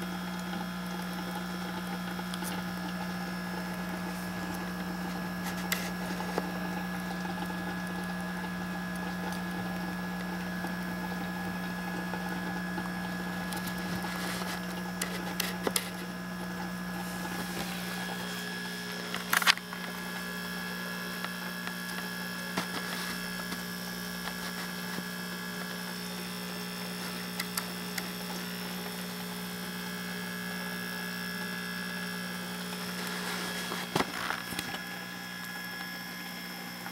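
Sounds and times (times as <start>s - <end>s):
air pump humming: 0.0s - 36.9s.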